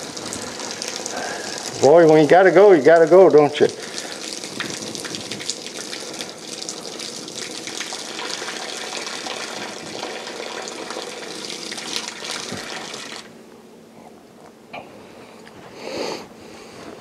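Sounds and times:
horse urine stream hitting ground: 3.9s - 13.3s.

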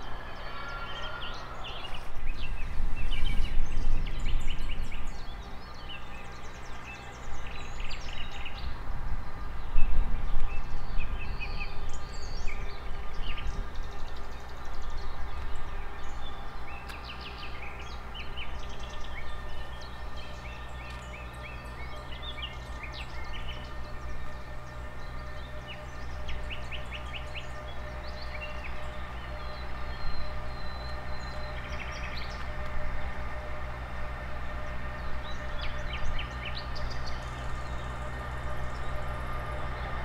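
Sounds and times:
faint hum: 0.0s - 40.0s
small birds chirping: 0.0s - 40.0s
steady low rumble: 0.0s - 40.0s.

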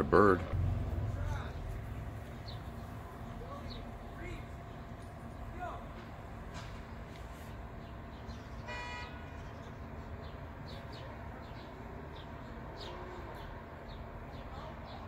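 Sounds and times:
low traffic hum: 0.0s - 15.0s
small birds chirping: 1.2s - 15.0s
car horn toot: 8.6s - 9.4s.

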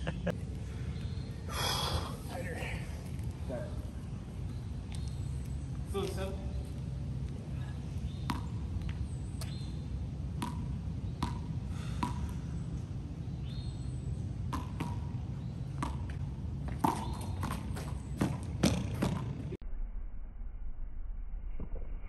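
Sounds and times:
rubber ball bouncing on concrete: 8.1s - 9.6s, 10.4s - 12.4s, 14.5s - 15.2s, 15.8s - 19.5s.

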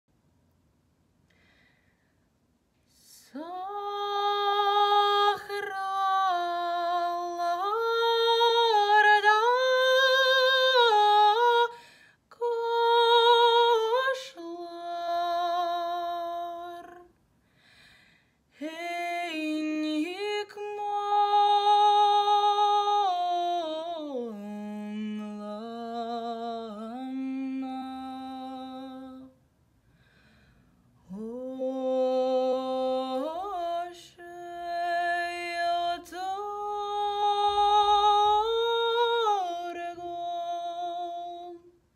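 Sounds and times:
woman singing lullaby: 31.1s - 41.7s.

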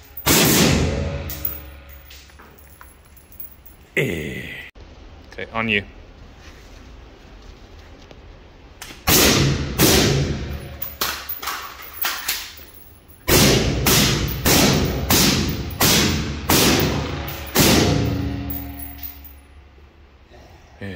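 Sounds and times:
rifle shots: 0.2s - 1.2s, 9.1s - 10.5s, 13.3s - 18.4s.

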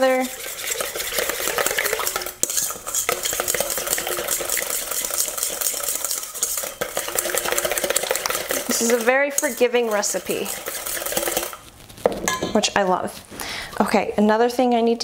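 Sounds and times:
whisk clicking in metal bowl: 0.0s - 11.6s.

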